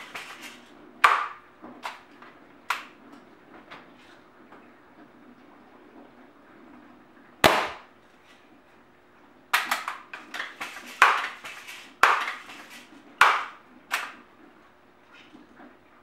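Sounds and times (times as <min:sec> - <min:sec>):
air rifle shot crack: 0:07.4 - 0:07.9
loud strikes: 0:07.4 - 0:07.9.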